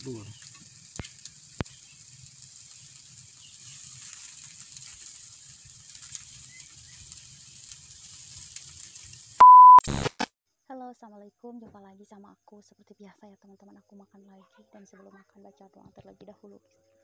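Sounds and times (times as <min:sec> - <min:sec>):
fish sizzling on grill: 0:00.0 - 0:09.4
fire crackling: 0:00.0 - 0:10.0
electronic beep: 0:09.4 - 0:10.1.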